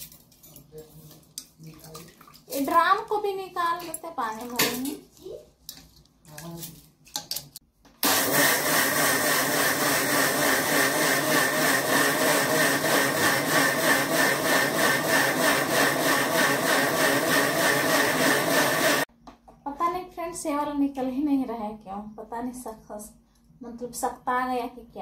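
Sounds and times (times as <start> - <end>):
mixer grinder whirring: 8.0 - 19.1.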